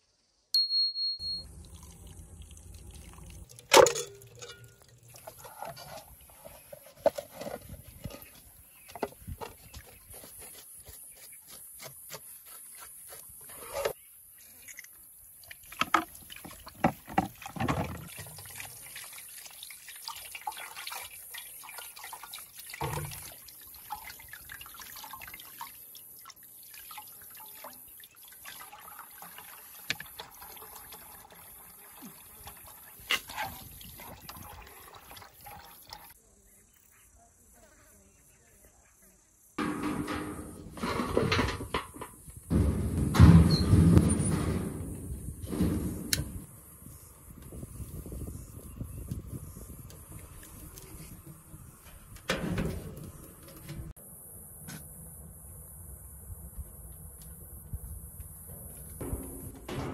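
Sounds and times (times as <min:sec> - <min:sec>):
water splashing and dripping: 0:01.4 - 0:06.4, 0:14.5 - 0:36.2.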